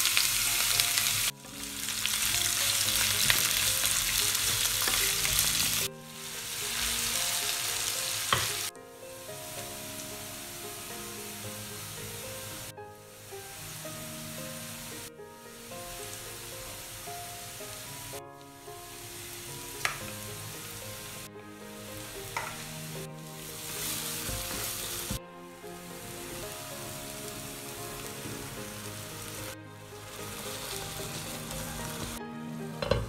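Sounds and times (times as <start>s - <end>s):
onions sizzling in a pan: 0.0s - 33.0s
wooden spatula stirring: 22.0s - 25.2s.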